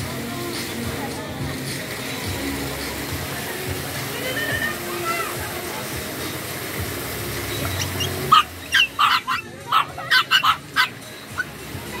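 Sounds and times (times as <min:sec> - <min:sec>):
fountain water rushing: 0:00.0 - 0:12.0
puppies yapping: 0:07.6 - 0:11.5.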